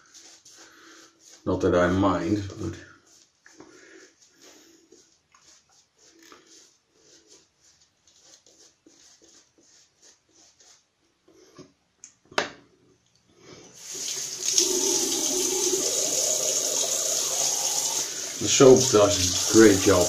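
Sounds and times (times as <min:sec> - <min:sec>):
shaving brush lathering: 0:00.0 - 0:10.9, 0:13.8 - 0:20.0
tap water running into sink: 0:13.8 - 0:20.0.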